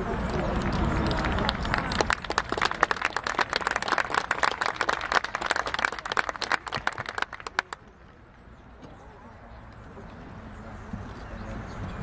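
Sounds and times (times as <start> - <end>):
crowd applause: 0.0 - 7.9.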